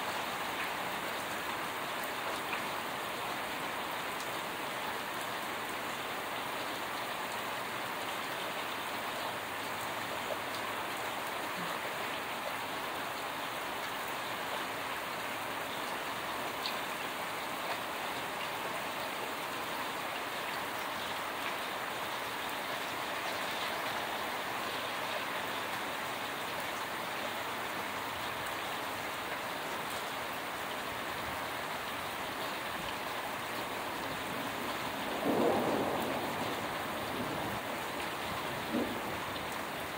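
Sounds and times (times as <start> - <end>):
rain drips ticking: 0.1 - 39.9
heavy rain hissing: 33.3 - 39.9.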